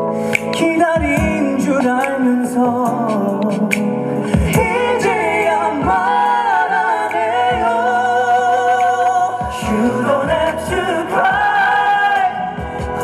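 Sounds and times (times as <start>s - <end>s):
backing track: 0.0s - 13.0s
man singing into microphone: 0.0s - 13.0s
low drum beat: 0.6s - 6.5s.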